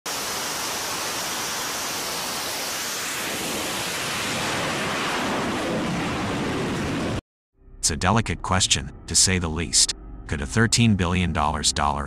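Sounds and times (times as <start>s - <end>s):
jet engines running: 0.2s - 7.2s.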